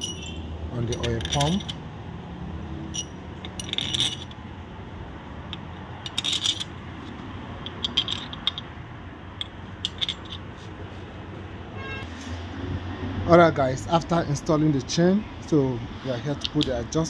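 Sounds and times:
metal bolts clinking on metal: 0:00.0 - 0:01.9, 0:02.9 - 0:04.4, 0:05.5 - 0:06.8, 0:07.6 - 0:08.8, 0:09.4 - 0:10.5, 0:16.4 - 0:16.8.

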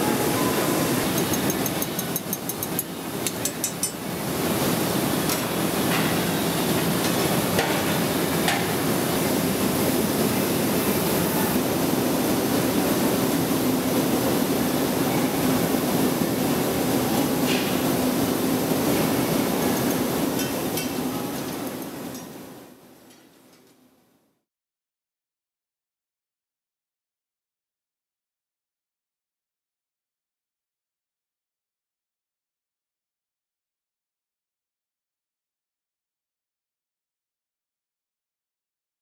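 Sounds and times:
furnace blowers running: 0:00.0 - 0:23.7.

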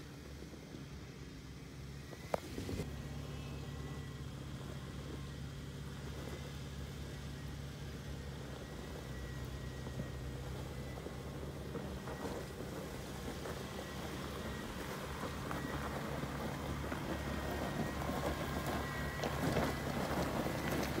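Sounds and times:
low engine hum: 0:00.0 - 0:21.0
stones crunching under tyres: 0:08.3 - 0:21.0.

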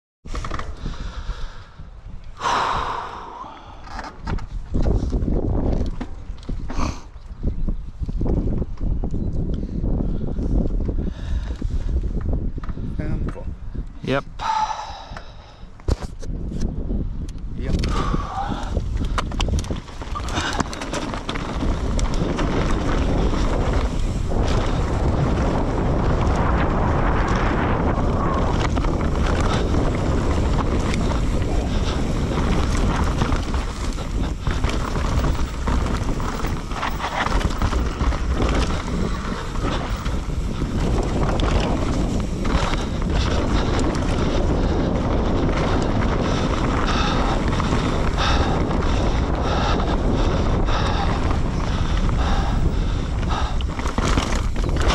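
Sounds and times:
wind buffeting microphone: 0:00.3 - 0:54.9
motorcycle engine running: 0:20.2 - 0:48.6.

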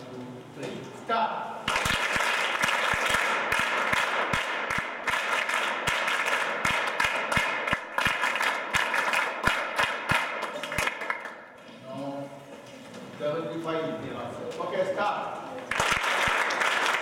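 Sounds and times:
crowd applauding: 0:01.7 - 0:11.5, 0:15.7 - 0:17.0.

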